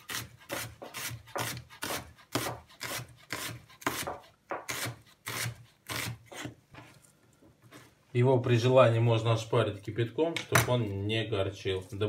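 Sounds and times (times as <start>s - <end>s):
knife slicing onion on wooden board: 0.0s - 7.0s.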